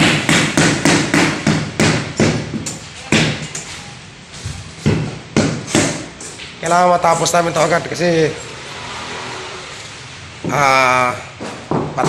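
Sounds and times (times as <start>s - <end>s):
hammer blows ringing: 0.0s - 3.7s.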